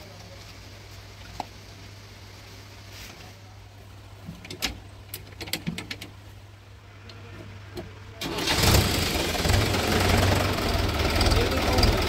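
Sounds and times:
tractor diesel engine running: 7.5 - 12.0.

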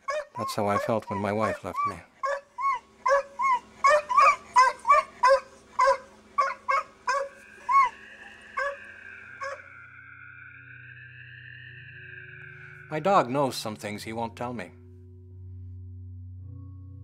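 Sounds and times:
dog yelping: 0.0 - 9.8
sustained background music: 10.8 - 17.0.

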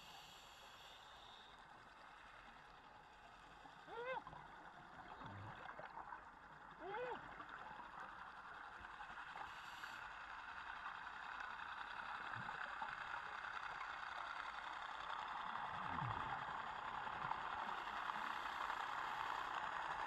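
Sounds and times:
underwater boat engine drone: 0.0 - 20.0.

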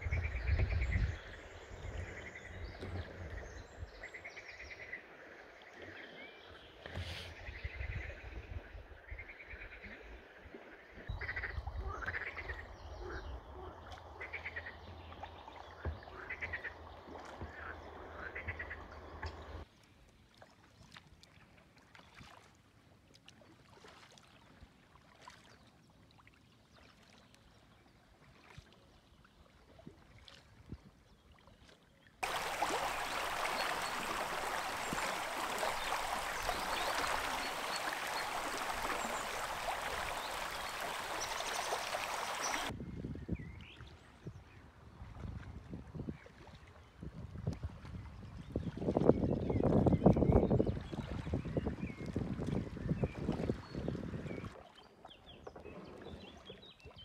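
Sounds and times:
frogs croaking: 10.8 - 14.8, 32.2 - 42.7
rush of flowing water: 32.2 - 42.8.

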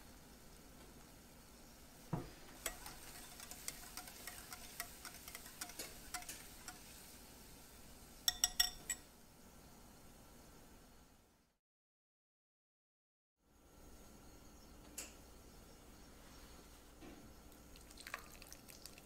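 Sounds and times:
whisk clicking against glass bowl: 2.6 - 6.9, 8.3 - 9.0
sharp ringing clinks on glass: 8.3 - 9.0.

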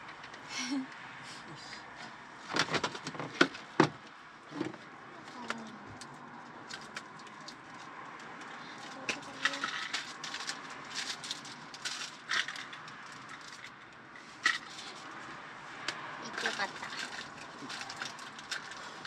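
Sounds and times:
small items clicking and knocking: 5.5 - 15.1, 15.9 - 19.0.

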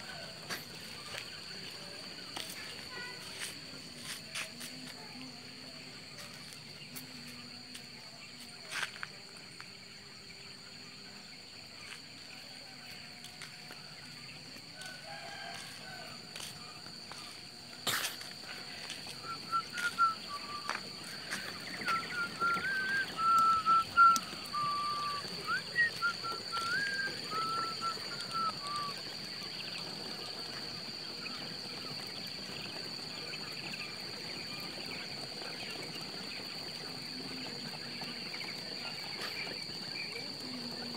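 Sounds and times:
birds chirping: 0.0 - 40.9.

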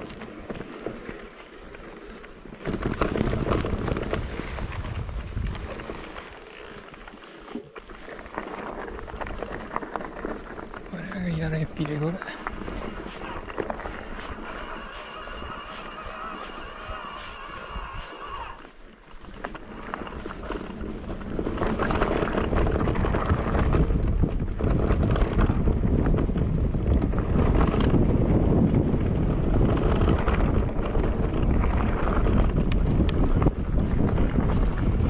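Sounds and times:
bike knocks and rattles: 2.5 - 6.8, 19.4 - 35.0
wind rushing over microphone: 2.6 - 6.4, 8.8 - 18.7, 19.3 - 35.0.

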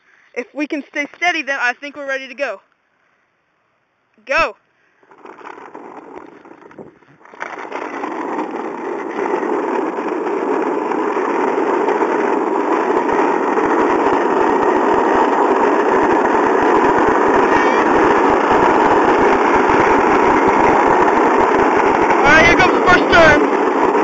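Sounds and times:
small wheels rolling on asphalt: 0.4 - 2.5, 4.3 - 24.0
wind buffeting microphone: 5.0 - 24.0.

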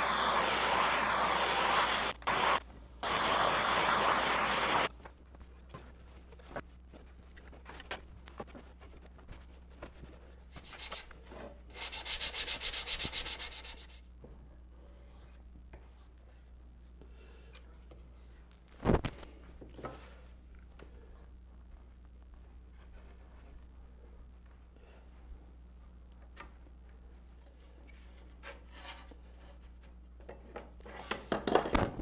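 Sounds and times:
loud steady rushing noise: 0.0 - 4.9
rapid rubbing strokes: 11.7 - 14.0.

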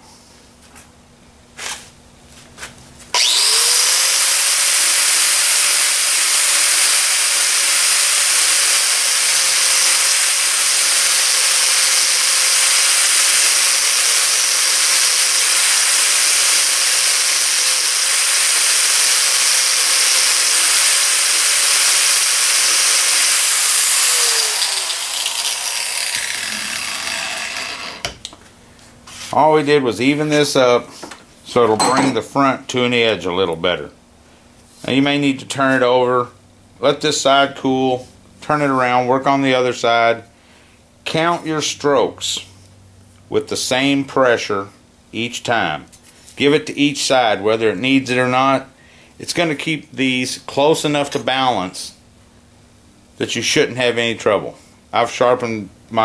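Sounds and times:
angle grinder grinding steel: 3.2 - 28.1.

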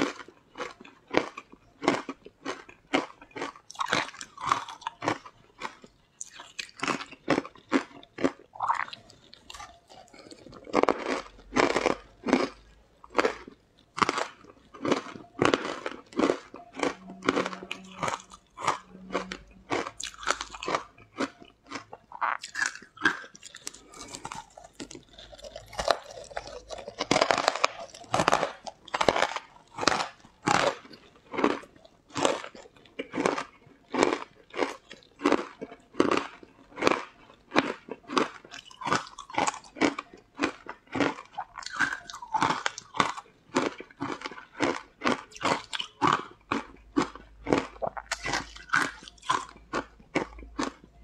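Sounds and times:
crunchy chewing: 0.0 - 51.0.

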